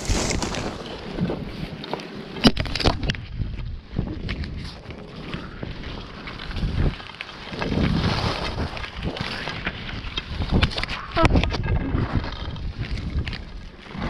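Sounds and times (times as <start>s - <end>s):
wind buffeting microphone: 2.6s - 14.0s.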